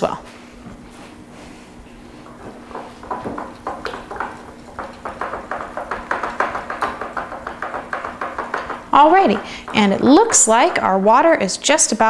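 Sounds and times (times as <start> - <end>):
whisk beating batter: 2.0 - 11.4
whisk wires tapping glass: 2.2 - 11.3.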